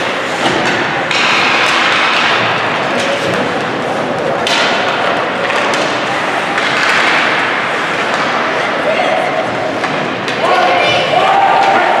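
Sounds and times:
hockey sticks and puck knocking: 0.0s - 8.7s, 9.7s - 12.0s
noisy rink din with voices: 0.0s - 12.0s.

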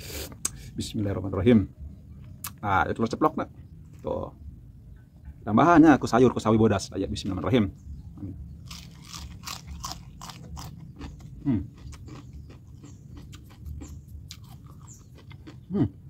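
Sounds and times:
crunchy chewing of cabbage: 8.5s - 16.0s.

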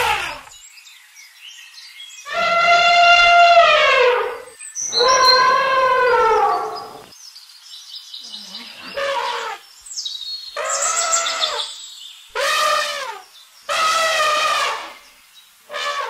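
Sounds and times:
elephant trumpeting: 0.0s - 0.5s, 2.3s - 7.1s, 8.8s - 9.6s, 12.4s - 15.0s, 15.7s - 16.0s.

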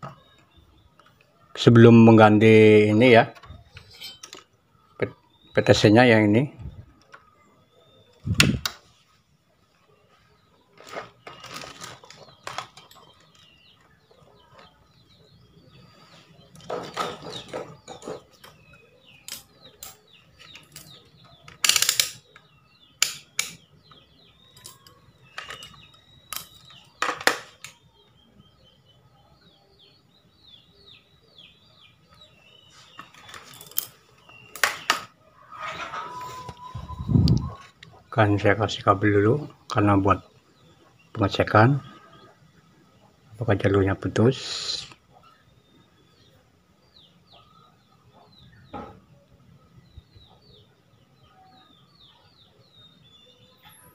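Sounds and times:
small birds chirping: 0.0s - 53.9s
objects clicking and clattering: 3.4s - 4.5s, 10.7s - 13.9s, 19.2s - 23.6s, 24.5s - 27.8s, 32.9s - 35.1s.

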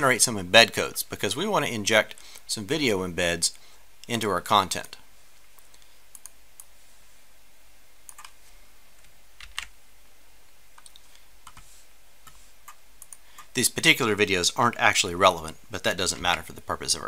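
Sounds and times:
computer keys clicking: 8.1s - 8.4s, 12.6s - 13.5s.

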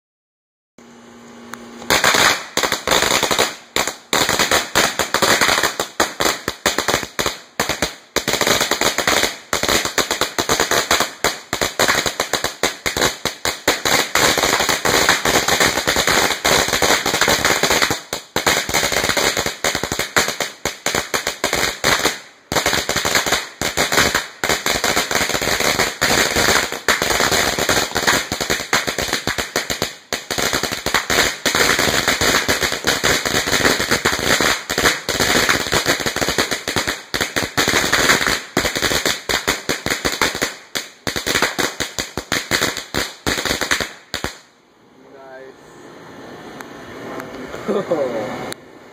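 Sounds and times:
firecrackers banging rapidly: 1.9s - 44.5s.

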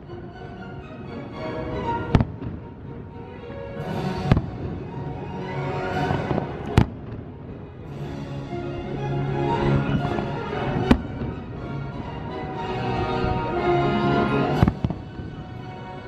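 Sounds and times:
fireworks show music: 0.0s - 16.0s
fireworks bangs: 2.1s - 3.0s, 4.2s - 4.9s, 6.0s - 7.6s, 14.6s - 15.5s.

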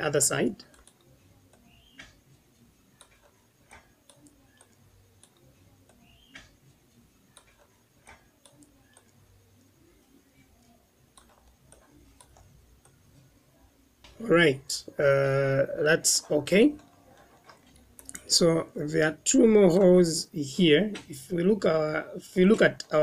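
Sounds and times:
computer mouse and keys clicking: 0.6s - 9.2s, 10.4s - 13.3s, 16.2s - 18.3s.

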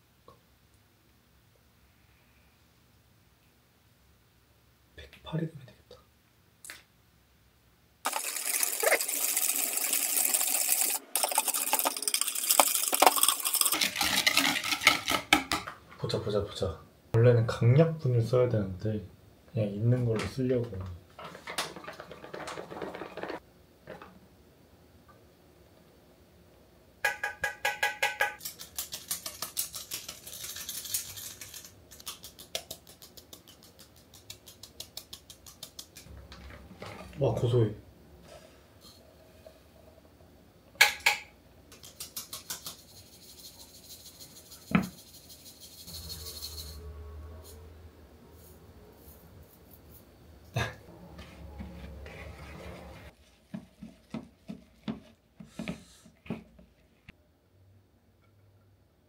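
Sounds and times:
wire whisk rattling in glass bowl: 8.1s - 15.2s, 28.4s - 36.1s, 41.7s - 47.0s.

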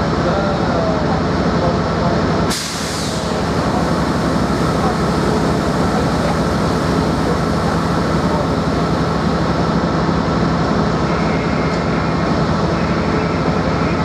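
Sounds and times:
diesel locomotive engine idling: 0.0s - 14.0s.

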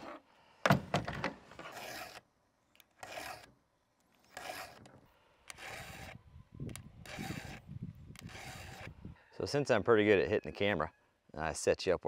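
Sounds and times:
file rasping on chain: 1.6s - 2.2s, 3.0s - 3.5s, 4.3s - 4.9s, 5.5s - 6.2s, 7.0s - 7.6s, 8.2s - 9.0s.

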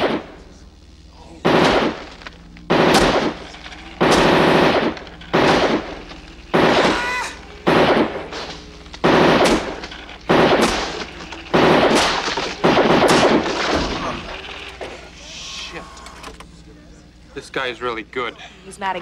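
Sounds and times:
machine pistol firing bursts: 1.5s - 2.1s, 2.7s - 14.7s.

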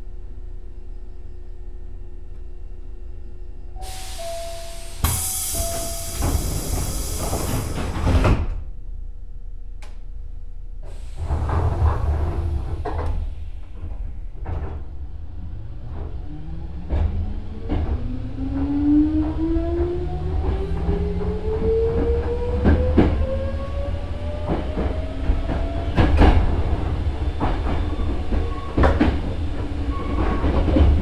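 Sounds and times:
train rumbling: 0.0s - 31.0s
train doors closing with air hiss: 3.8s - 8.7s, 10.8s - 14.9s.

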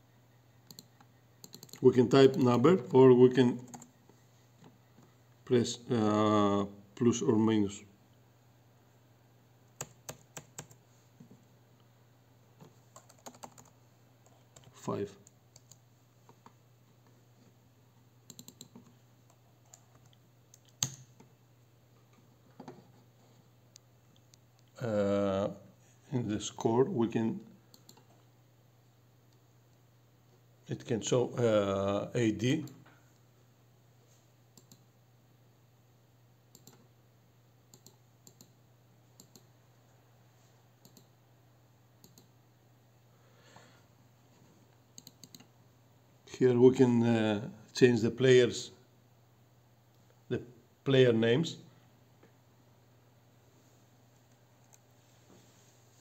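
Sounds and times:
faint low hum: 0.0s - 56.0s
computer key taps and clicks: 20.6s - 21.1s.

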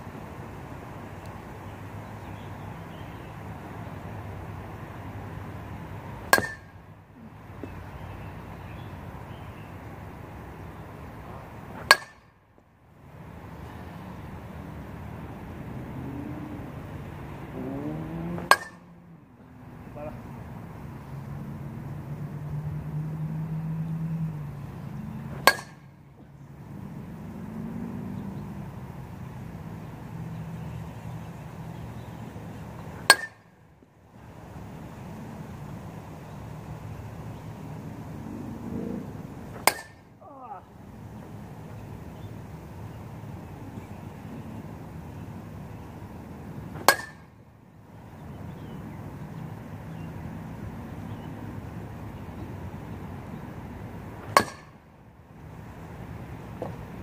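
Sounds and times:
metal bat pinging a ball: 6.3s - 6.7s, 11.8s - 12.3s, 17.6s - 19.0s, 25.3s - 25.9s, 33.0s - 33.5s, 39.6s - 40.0s, 46.8s - 47.3s, 54.3s - 54.8s.

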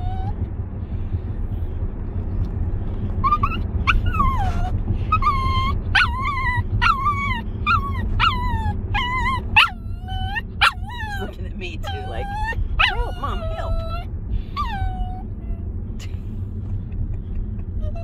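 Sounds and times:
dog whining and yipping: 0.0s - 0.4s, 3.2s - 15.7s, 17.7s - 18.0s
car road rumble: 0.0s - 18.0s.

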